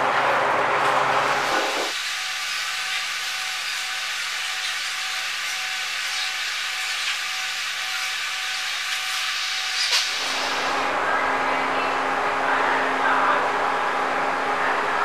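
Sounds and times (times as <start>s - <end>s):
faint hum tones: 10.2s - 15.0s.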